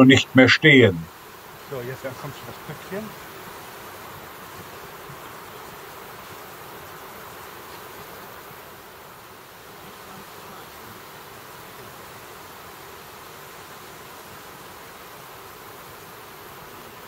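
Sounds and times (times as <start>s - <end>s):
insects buzzing: 0.0s - 17.0s.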